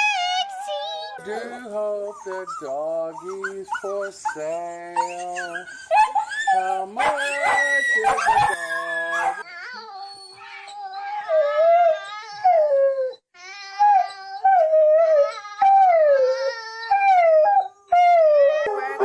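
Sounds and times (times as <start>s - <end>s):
man howling: 1.2s - 9.4s
dog howling: 2.1s - 9.5s.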